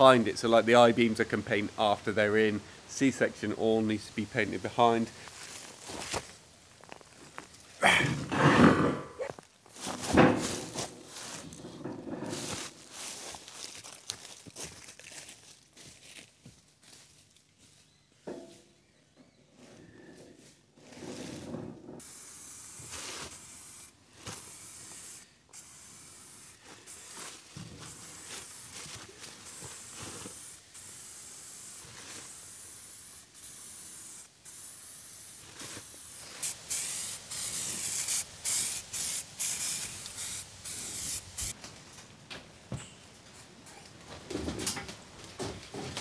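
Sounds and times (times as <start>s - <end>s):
spray paint can hissing: 22.0s - 41.6s.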